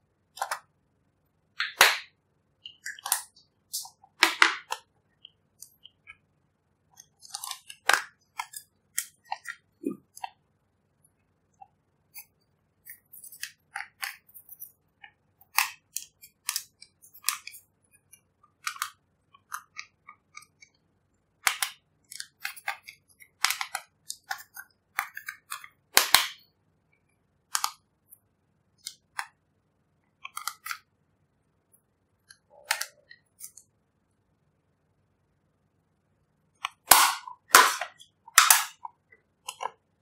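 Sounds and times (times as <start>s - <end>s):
plastic spatula scraping palette: 7.0s - 10.4s.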